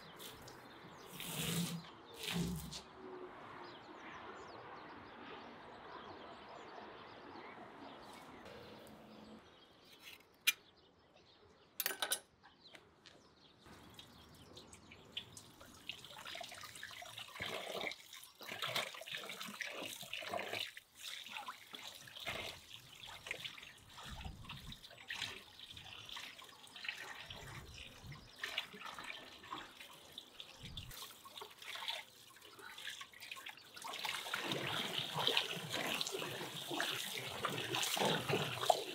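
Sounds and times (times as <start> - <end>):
tap water running into basin: 13.7 - 38.9
hands rubbing meat in water: 30.9 - 38.9.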